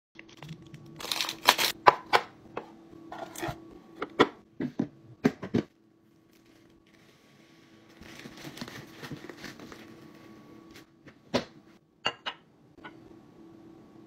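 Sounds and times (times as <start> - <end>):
plastic packaging crinkling: 0.2 - 1.8, 8.0 - 10.0.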